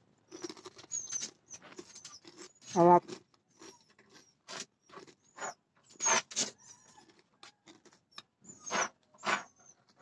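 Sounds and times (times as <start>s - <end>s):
crunching crispy crackers: 0.2s - 5.3s, 6.0s - 8.1s.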